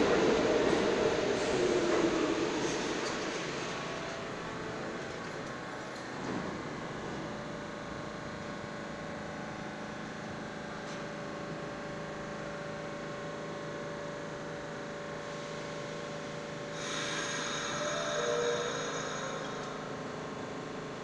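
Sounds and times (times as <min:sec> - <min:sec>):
subway train humming: 0:00.0 - 0:21.0
loud hiss: 0:16.8 - 0:19.7
steady equipment tones: 0:16.9 - 0:20.0.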